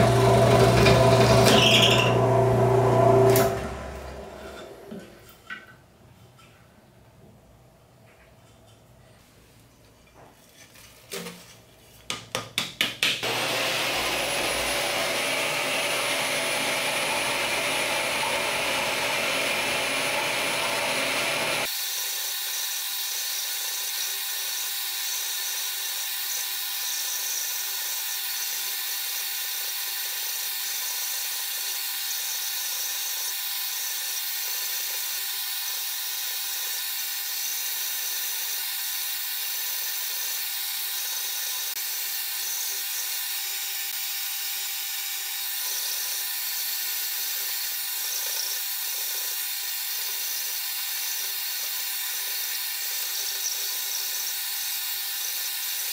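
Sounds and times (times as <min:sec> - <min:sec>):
vacuum motor whining: 0:00.0 - 0:05.0, 0:13.2 - 0:21.7
steady motor hum: 0:13.2 - 0:21.7.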